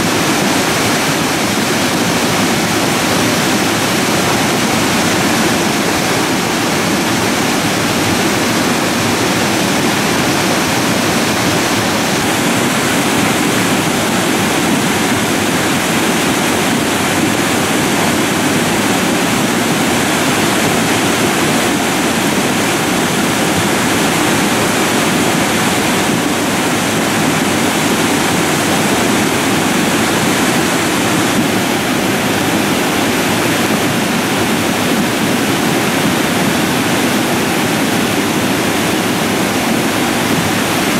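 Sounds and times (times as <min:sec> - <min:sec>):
muddy water rushing with boulders: 0:00.0 - 0:40.9.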